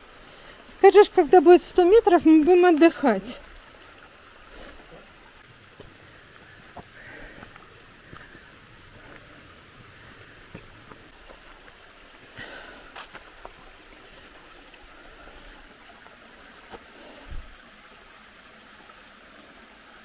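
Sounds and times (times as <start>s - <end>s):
stream trickling over rocks: 0.0s - 20.0s
footsteps on dirt trail: 5.7s - 9.4s.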